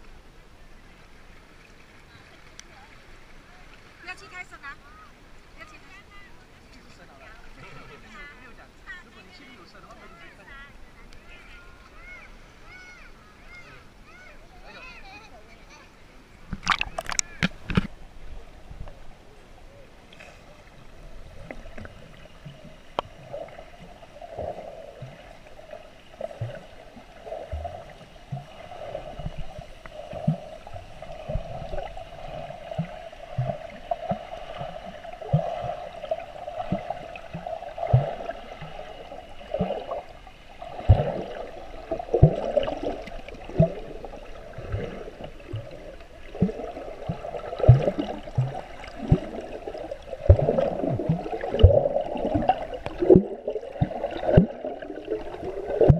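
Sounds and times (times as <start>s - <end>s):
muffled underwater wash: 0.0s - 55.9s
underwater gurgles and bubbles: 16.4s - 55.9s.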